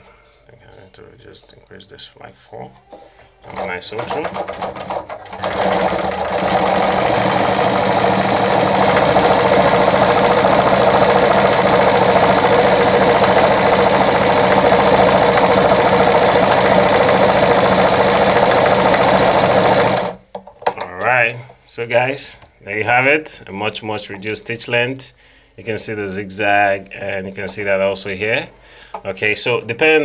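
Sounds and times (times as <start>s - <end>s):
sewing machine running: 3.4s - 20.2s.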